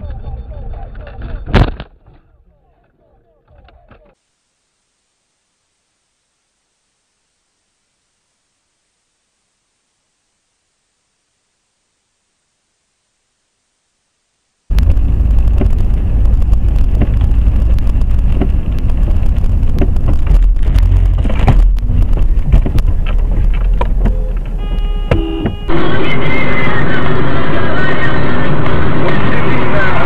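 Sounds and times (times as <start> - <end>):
sharp clicks and knocks: 14.7 - 25.7
engine and road noise: 14.7 - 30.0
short tones: 24.1 - 27.3.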